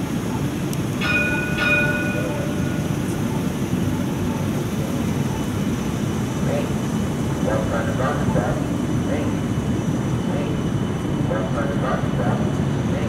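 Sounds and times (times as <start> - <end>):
streetcar warning bell dings: 0.0 - 9.5
steady low rumble: 0.0 - 13.0.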